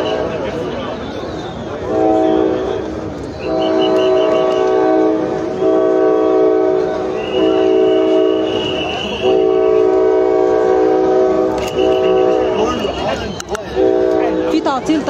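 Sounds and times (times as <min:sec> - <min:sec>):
train horn blasts: 0:00.0 - 0:00.6, 0:01.8 - 0:13.0, 0:13.7 - 0:14.6.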